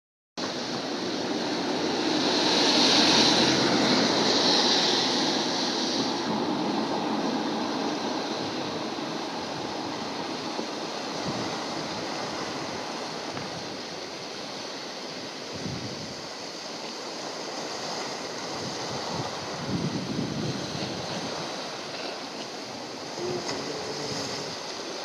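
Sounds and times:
sea water washing: 0.4 - 25.0
wind on microphone: 0.4 - 25.0.

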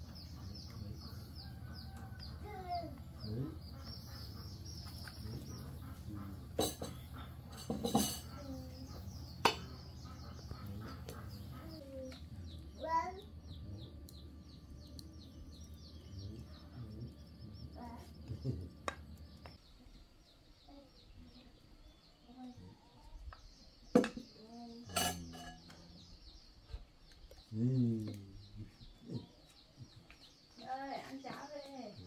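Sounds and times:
birds chirping: 0.0 - 32.0
low hum: 8.6 - 19.6
steel bowl clinking: 24.9 - 25.6.

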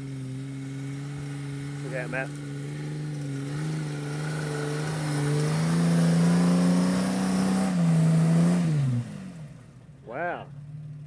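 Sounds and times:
engine revving hard: 0.0 - 9.5
spinning tyres spraying sand: 0.0 - 9.9.

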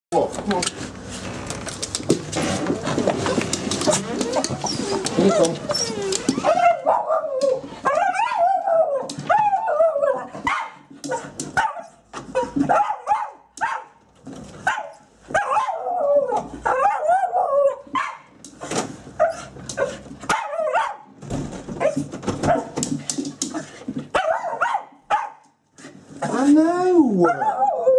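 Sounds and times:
sharp clicks and rustles: 0.3 - 8.2
dog howling and whining: 3.2 - 10.5, 15.4 - 18.0, 27.1 - 27.9
dog yips and barks: 3.3 - 14.0, 14.6 - 18.3, 19.2 - 21.1, 21.8 - 22.8, 24.1 - 25.4, 27.2 - 27.9.

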